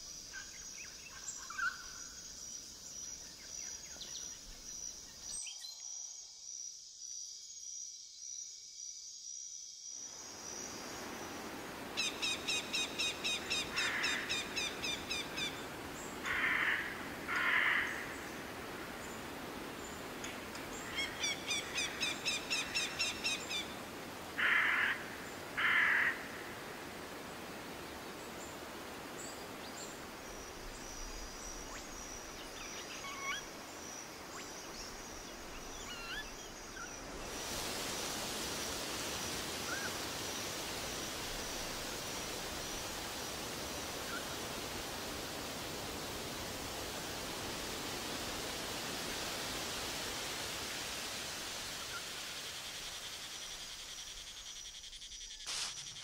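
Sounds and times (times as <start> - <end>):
background hiss: 0.0 - 56.0
bird chirping call: 31.6 - 33.5.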